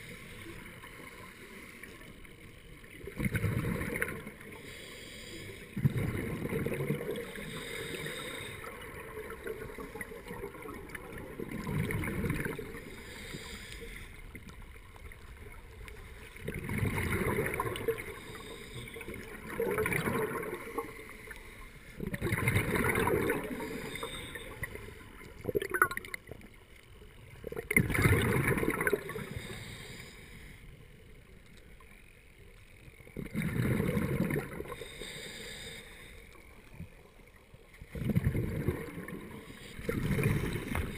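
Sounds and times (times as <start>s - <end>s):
diver exhaling bubbles underwater: 5.8s - 7.4s, 16.4s - 18.2s, 19.0s - 20.9s, 22.0s - 24.1s, 27.5s - 29.3s, 33.2s - 34.8s, 38.0s - 40.9s
regulator hiss: 34.7s - 36.5s.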